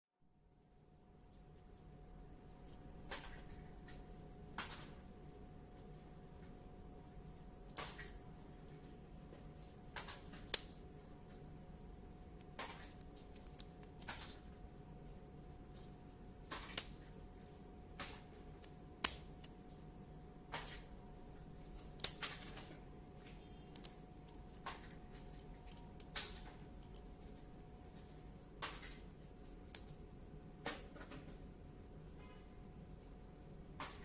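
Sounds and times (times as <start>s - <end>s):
padlock shackle clicking: 10.0s - 10.8s, 12.4s - 14.4s, 18.6s - 19.6s, 23.7s - 27.2s.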